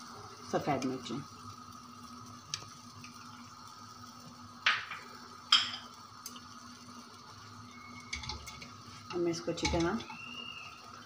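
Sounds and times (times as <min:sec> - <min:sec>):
faint steady hum: 0:00.0 - 0:11.0
kitchen utensils clinking: 0:04.7 - 0:05.9, 0:08.0 - 0:10.2.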